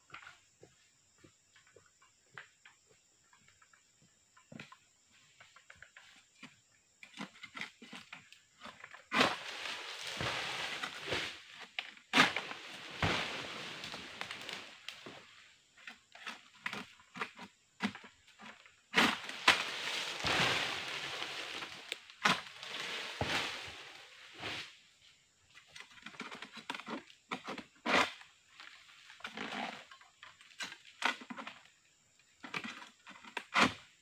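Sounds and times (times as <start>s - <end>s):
palm fronds rustling and scraping: 5.1s - 31.7s.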